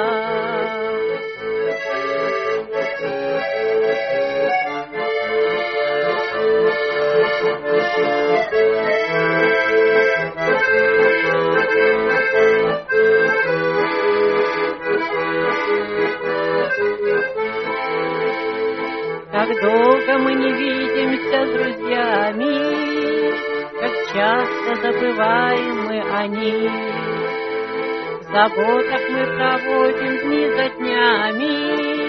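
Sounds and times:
bass and chord accompaniment: 0.0 - 30.4
button accordion melody: 0.0 - 32.0.

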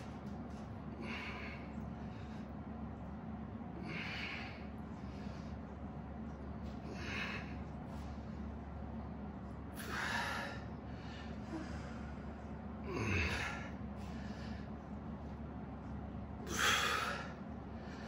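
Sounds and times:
steady low hum: 0.0 - 18.0
person breathing forcefully: 0.9 - 2.7, 3.8 - 5.9, 6.6 - 8.6, 9.7 - 15.3, 16.4 - 18.0.

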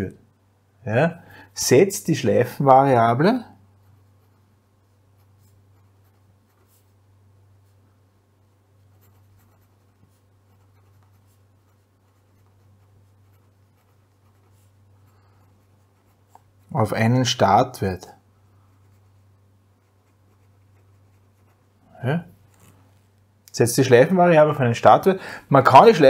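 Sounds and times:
steady low hum: 0.0 - 26.0
pen scratching on paper: 5.2 - 6.9, 8.8 - 16.8, 18.8 - 21.8.

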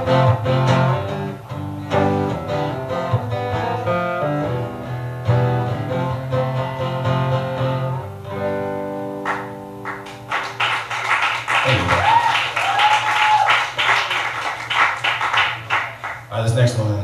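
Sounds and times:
acoustic guitar chord ringing: 0.0 - 10.3
audience applause: 9.3 - 16.3.

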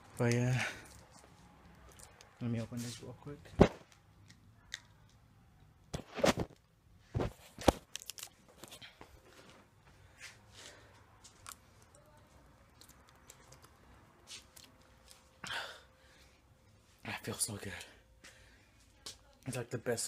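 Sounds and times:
plastic bottle crackling: 7.5 - 8.7.

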